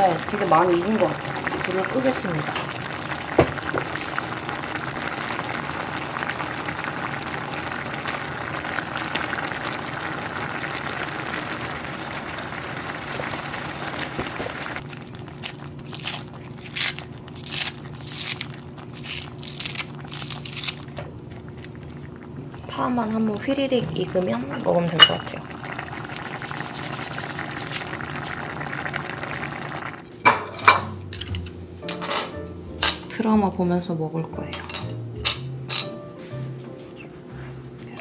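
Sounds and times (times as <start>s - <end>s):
food sizzling and bubbling: 0.0s - 31.8s
scissors snipping green onions: 15.4s - 20.8s.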